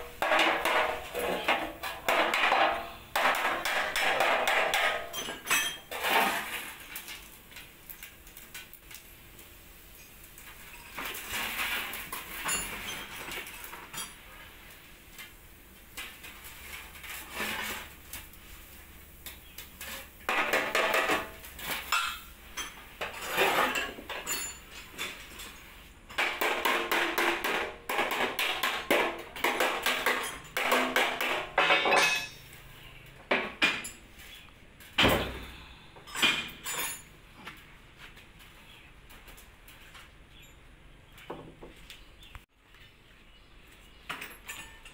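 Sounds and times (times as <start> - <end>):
metal clattering and scraping: 0.0 - 7.3, 10.4 - 14.6, 16.0 - 18.2, 19.8 - 37.6.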